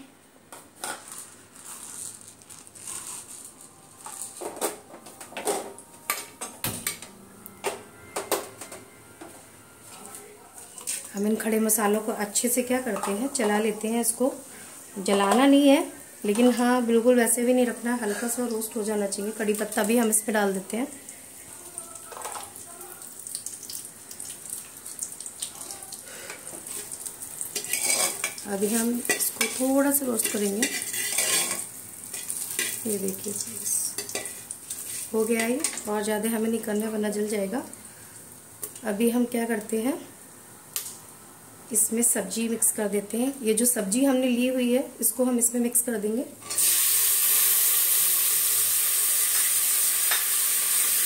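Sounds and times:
spices sizzling in hot oil: 11.4s - 38.9s, 46.4s - 51.0s
spoon stirring: 26.6s - 32.9s.

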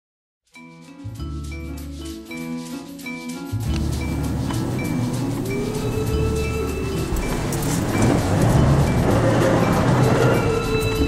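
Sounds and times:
background music with beat: 0.5s - 11.0s
deep bass line: 3.6s - 11.0s.

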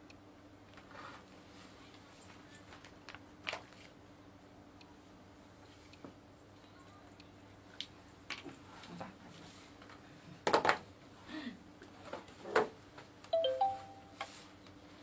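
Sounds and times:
faint steady hum: 0.0s - 12.2s, 12.9s - 15.0s
electronic chime beeps: 13.4s - 14.1s.

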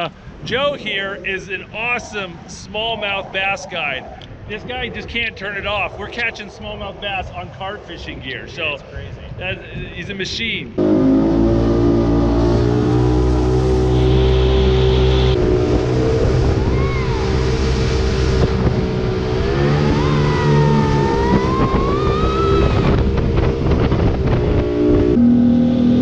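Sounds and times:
water rushing past hull: 10.8s - 25.9s
motorboat engine running: 10.8s - 26.0s
whining tone: 10.8s - 26.0s.

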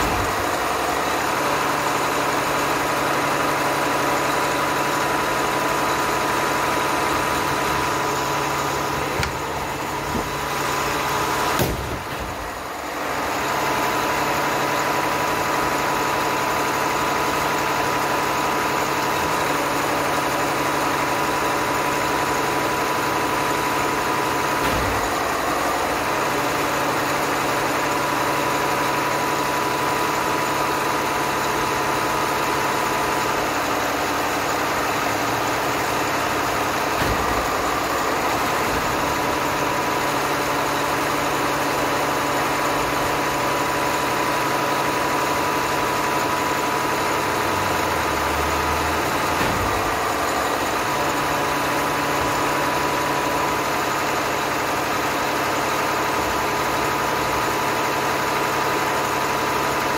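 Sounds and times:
diesel engine running: 0.0s - 59.9s
low thuds: 8.9s - 12.6s.

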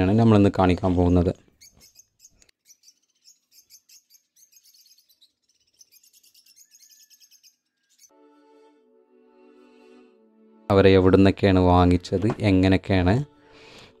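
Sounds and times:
lovebirds chirping: 0.0s - 8.2s
music: 7.6s - 14.0s.

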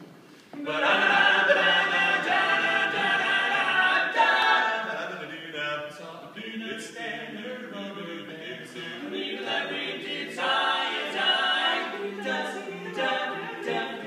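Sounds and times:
male quartet singing a cappella: 0.6s - 14.0s.

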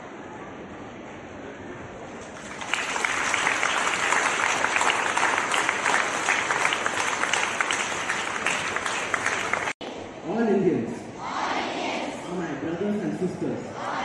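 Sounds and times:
crowd clapping: 2.1s - 9.9s.

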